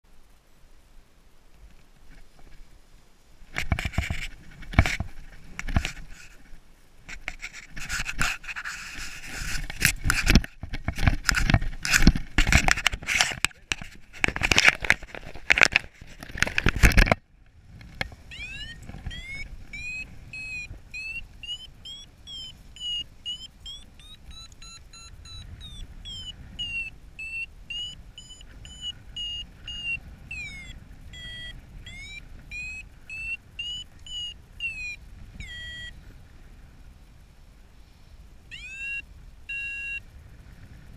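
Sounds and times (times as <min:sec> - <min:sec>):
wind buffeting microphone: 0:07.1 - 0:40.9
variometer beeping: 0:18.0 - 0:36.0, 0:38.5 - 0:40.1.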